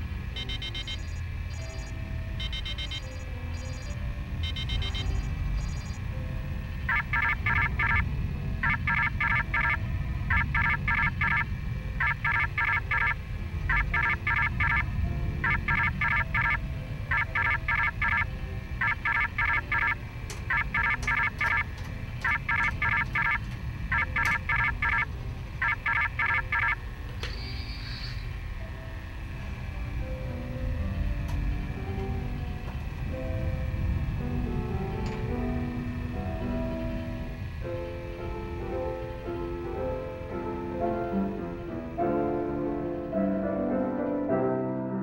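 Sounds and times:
steady low rumble: 0:00.0 - 0:27.2, 0:28.3 - 0:43.7
electronic alarm beeping: 0:00.3 - 0:06.0, 0:06.8 - 0:26.8.

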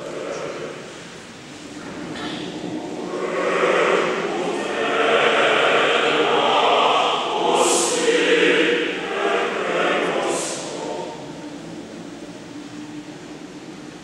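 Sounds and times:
choir singing: 0:00.0 - 0:13.6.

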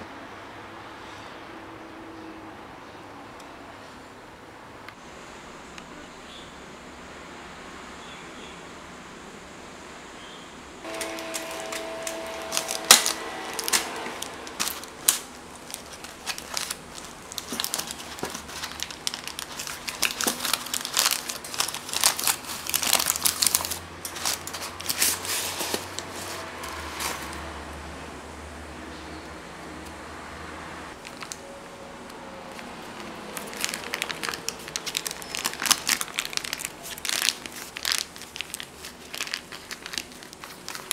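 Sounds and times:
parchment paper crinkling: 0:10.8 - 0:27.5, 0:31.0 - 0:31.5, 0:32.4 - 0:40.9.

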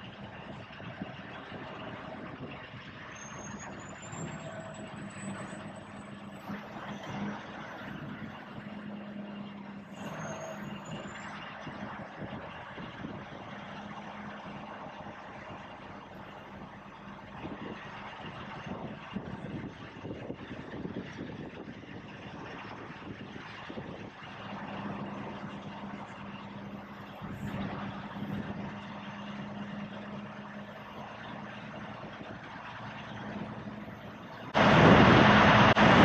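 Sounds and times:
diesel truck engine running: 0:00.0 - 0:36.0.

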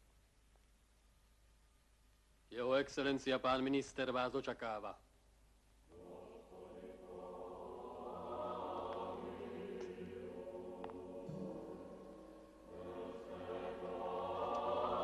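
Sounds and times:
choir singing held chords: 0:05.9 - 0:15.0.

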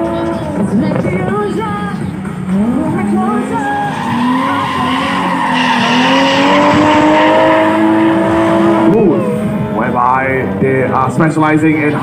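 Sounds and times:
car engine revving high: 0:02.2 - 0:12.0
tyres squealing: 0:03.3 - 0:07.6.

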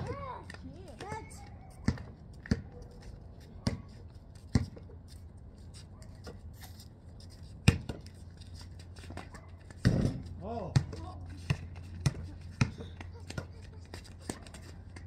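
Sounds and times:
basketball bouncing on concrete: 0:00.0 - 0:05.0, 0:07.6 - 0:08.2, 0:09.0 - 0:15.0.

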